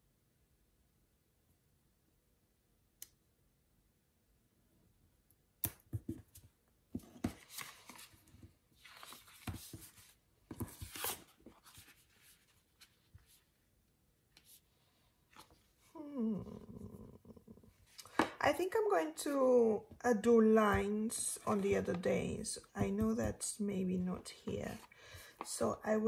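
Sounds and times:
light tick: 0:03.0 - 0:03.2
paper sheets rustling: 0:07.0 - 0:13.5.

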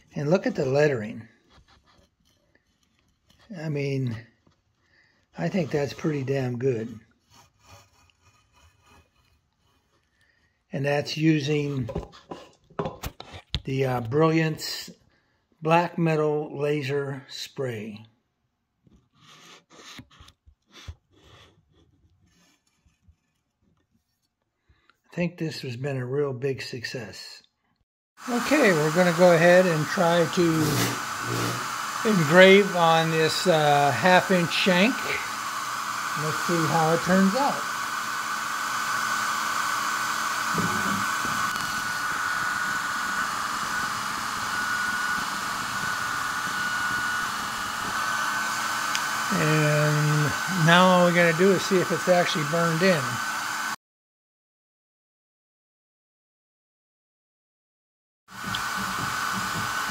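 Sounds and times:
soft rubbing and scraping: 0:07.2 - 0:10.2
air assist fan hissing: 0:28.2 - 0:53.7.

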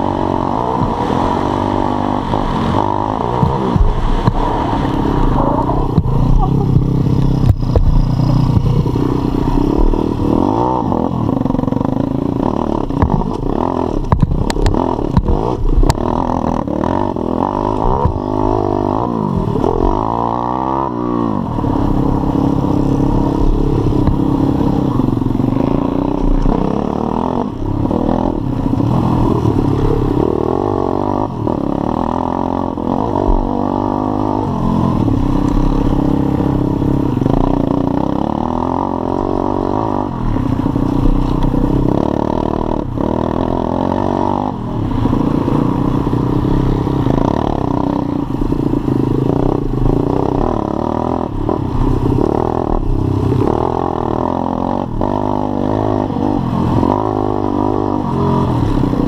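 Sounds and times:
motorbike engine revving: 0:00.0 - 0:59.0
bike knocking over bumps: 0:13.0 - 0:13.4, 0:14.0 - 0:16.0.

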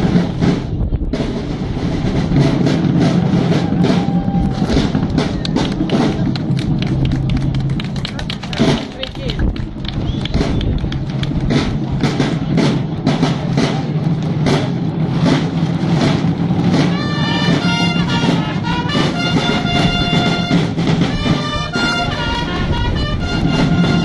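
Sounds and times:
marching side drums: 0:00.0 - 0:24.0
trumpets holding long notes: 0:16.8 - 0:24.0.

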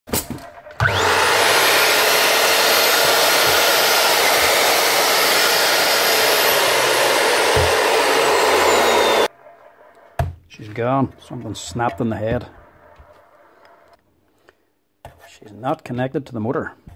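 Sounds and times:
angle grinder motor whining: 0:00.6 - 0:09.3.

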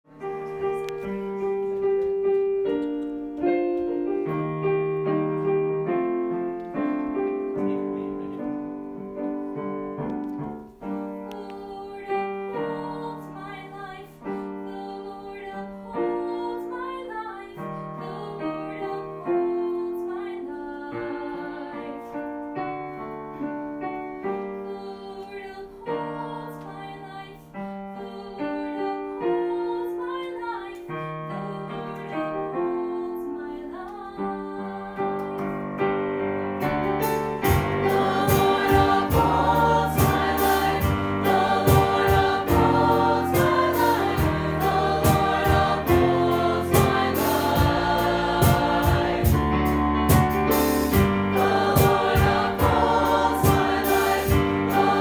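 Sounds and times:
piano accompaniment: 0:00.0 - 0:55.0
choir singing held chords: 0:37.0 - 0:55.0.

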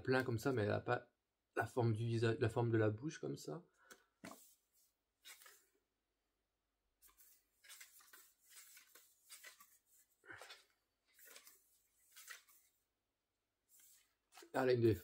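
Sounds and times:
pages turning: 0:04.2 - 0:05.8, 0:07.0 - 0:12.9, 0:13.6 - 0:15.0.

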